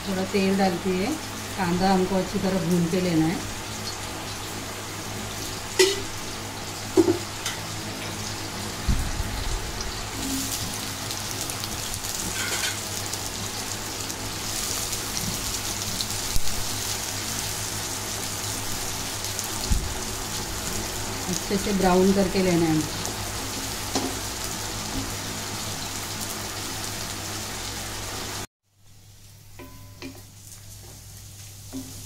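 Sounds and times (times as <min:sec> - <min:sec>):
onions frying in sizzling oil: 0:00.0 - 0:32.0
utensils knocking against pan: 0:05.8 - 0:06.1, 0:07.0 - 0:07.6, 0:12.3 - 0:12.8, 0:29.6 - 0:30.3.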